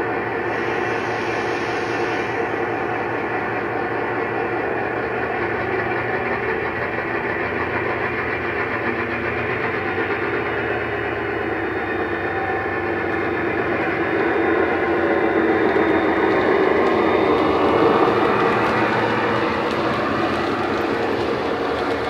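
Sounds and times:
diesel engine sound from speaker: 0.0 - 22.0
hiss: 0.4 - 3.5.

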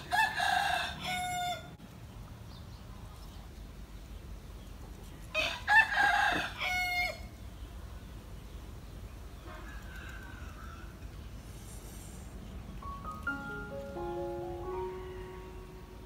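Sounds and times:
rooster crowing: 0.0 - 1.8, 5.4 - 7.3, 9.5 - 11.0.

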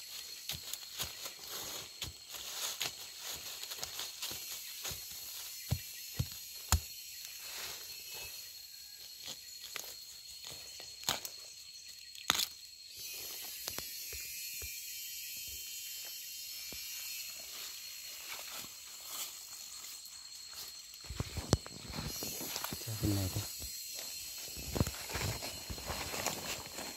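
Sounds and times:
footsteps on dry leaves: 0.0 - 5.8, 18.3 - 23.4, 24.5 - 26.9
leaf litter rustling: 24.7 - 26.9.

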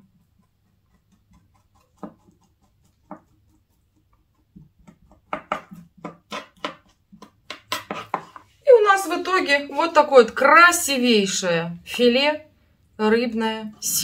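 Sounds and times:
knife scraping fish fillet: 0.1 - 8.5
knife tapping cutting board: 3.0 - 3.3, 4.5 - 8.4.

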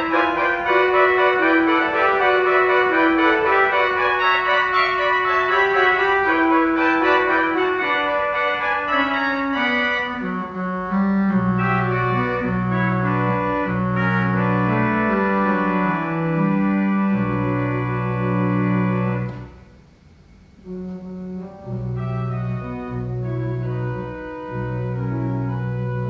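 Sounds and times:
organ pedal bass line: 0.0 - 19.6, 20.6 - 26.0
pipe organ chords: 0.0 - 26.0.

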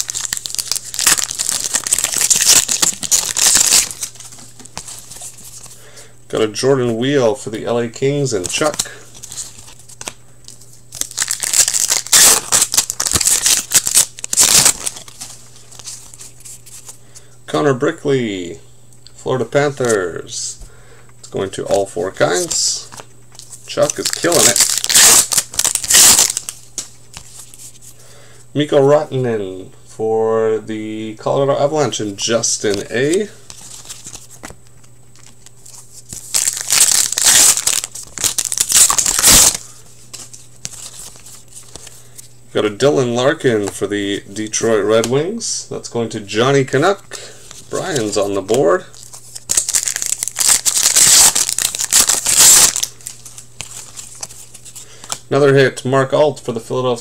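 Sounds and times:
foil wrapper crinkling: 0.0 - 5.7, 8.4 - 16.9, 22.4 - 27.8, 32.6 - 42.3, 47.2 - 55.2.

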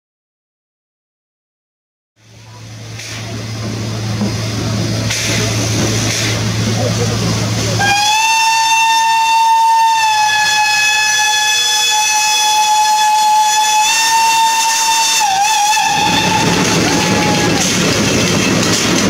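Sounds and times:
steam locomotive whistle blast: 7.8 - 17.9
low rumble: 15.8 - 19.0.

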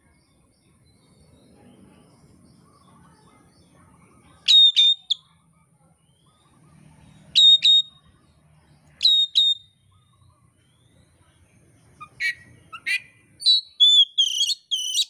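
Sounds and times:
bird calling: 4.4 - 5.2, 9.0 - 10.9, 11.9 - 15.0.

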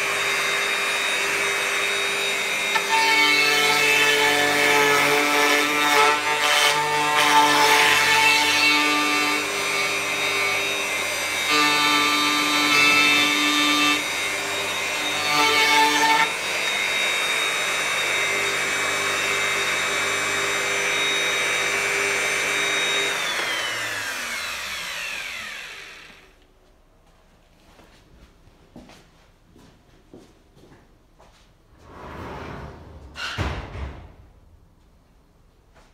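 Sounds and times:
electric router running: 0.0 - 26.4
router spinning down: 7.4 - 26.4.

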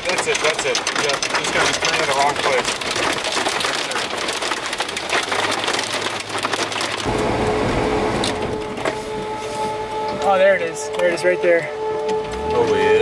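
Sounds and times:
heavy rain on car roof: 0.0 - 9.3
low steady rumble: 7.0 - 9.9.

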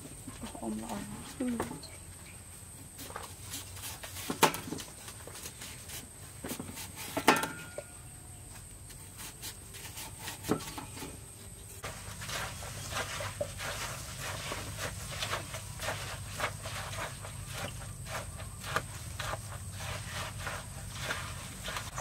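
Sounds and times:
knife cutting watermelon: 2.8 - 11.4, 12.3 - 22.0
squelching mashing of fruit: 11.8 - 22.0.

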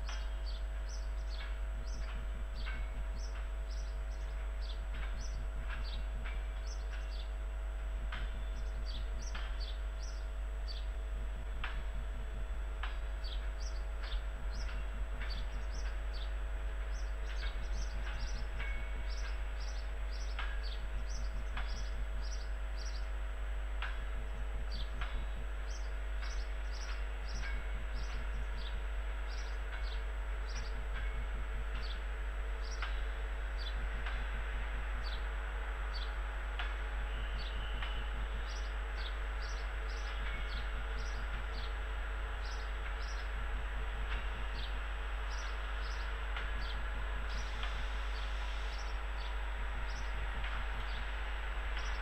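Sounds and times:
railway station rumble and hum: 0.0 - 52.0
train moving slowly past: 0.0 - 52.0
small birds chirping: 0.1 - 7.3, 13.2 - 23.1, 24.7 - 30.8.

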